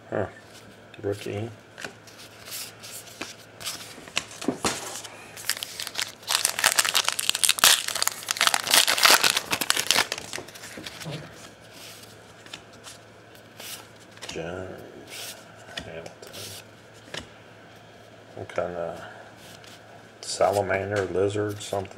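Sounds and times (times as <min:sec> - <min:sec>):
cards rustling: 0:02.1 - 0:11.1
wrapper crinkling and tearing: 0:05.4 - 0:11.0.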